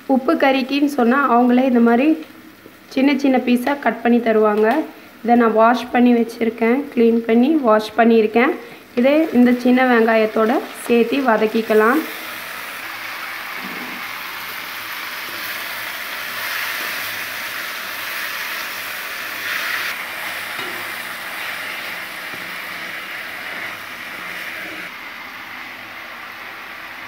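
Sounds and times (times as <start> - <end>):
chicken sizzling in hot oil: 9.0 - 27.0.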